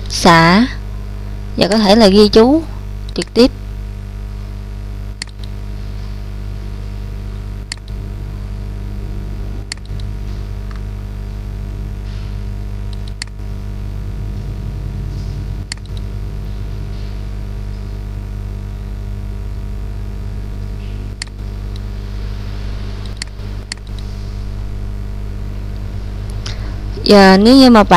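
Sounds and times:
electrical hum: 0:00.0 - 0:27.9
computer mouse clicks: 0:05.2 - 0:05.6, 0:07.7 - 0:08.0, 0:09.7 - 0:10.8, 0:12.9 - 0:13.4, 0:15.7 - 0:16.1, 0:23.0 - 0:24.1.

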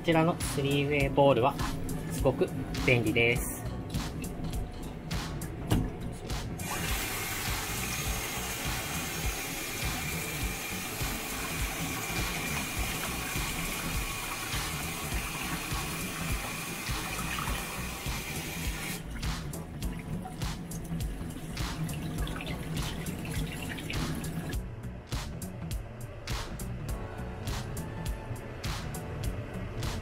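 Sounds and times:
tap water running into colander: 0:06.6 - 0:24.6.

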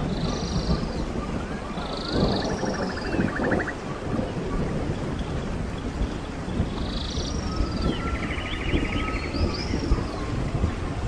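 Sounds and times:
songbirds singing: 0:00.0 - 0:11.0
stream running: 0:00.0 - 0:11.0.

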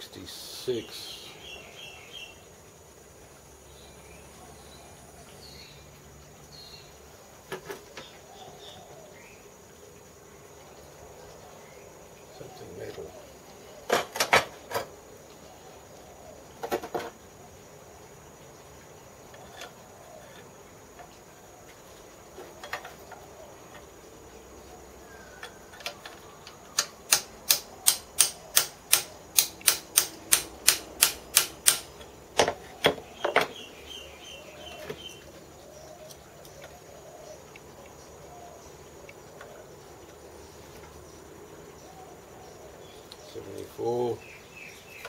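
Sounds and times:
small hammer tapping metal: 0:26.8 - 0:32.1.

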